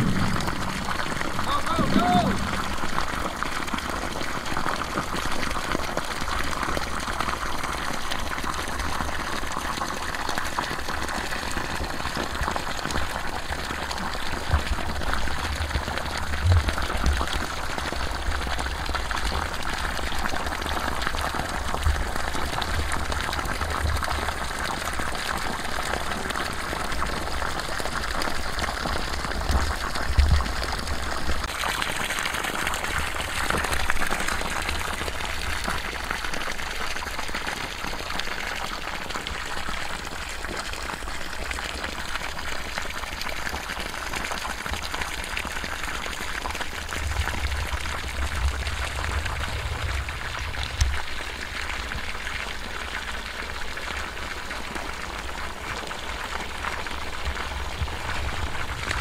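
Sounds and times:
bumps: 0.0 - 3.4
low uneven rumble: 0.0 - 4.2, 46.5 - 53.5, 57.0 - 59.0
water gushing and splashing: 0.0 - 59.0.

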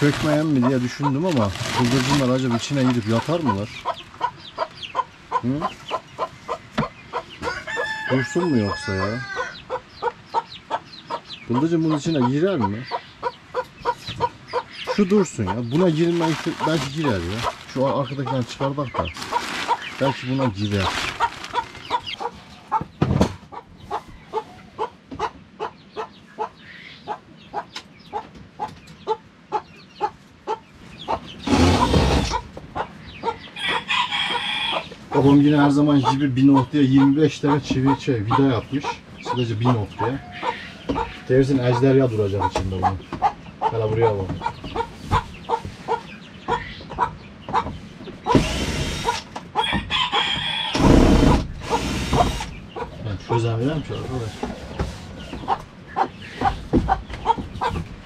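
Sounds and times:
loud rustling: 0.0 - 4.1, 15.7 - 22.2
chickens clucking: 0.0 - 58.0
cordless drill whirring: 48.4 - 49.2, 51.2 - 52.5.

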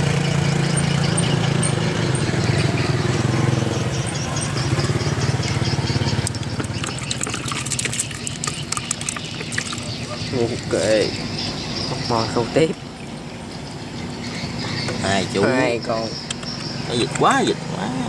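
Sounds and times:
vehicle engine running: 0.0 - 18.0
sharp clicks and rattles: 4.1 - 10.7, 16.2 - 17.4.

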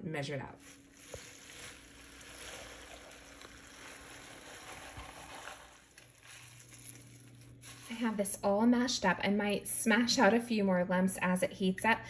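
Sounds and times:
wet mashing of watermelon: 0.6 - 8.0.

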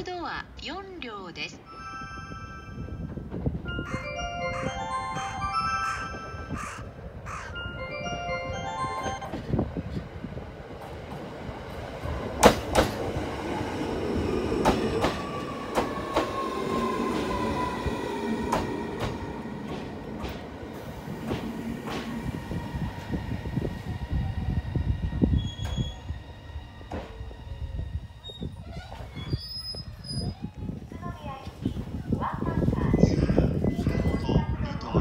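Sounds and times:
train rumble: 2.0 - 35.0
train inverter whine: 2.8 - 28.6.

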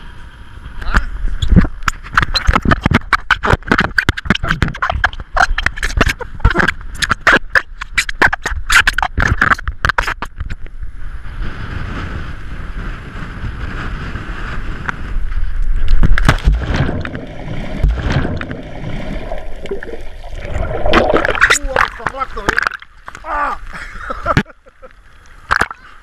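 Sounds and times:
wind on camera: 0.0 - 24.5
underwater bubbling and gurgling: 0.5 - 12.0, 12.6 - 26.0
loud plunge into water: 16.2 - 22.8.

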